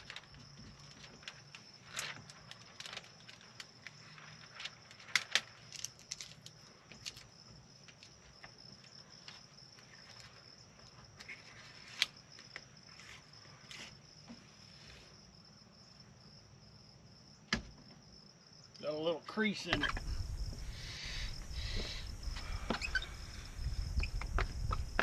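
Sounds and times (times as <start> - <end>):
window film crackling and squeaking: 0.0 - 14.0, 19.7 - 25.0
crickets trilling: 0.0 - 25.0.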